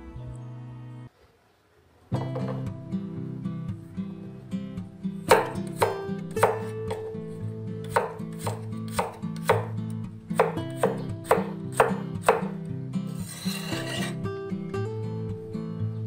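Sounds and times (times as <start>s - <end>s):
cleaver chopping on wooden board: 5.3s - 7.1s, 7.9s - 9.7s, 10.4s - 12.6s
blade scraping board: 13.1s - 14.2s.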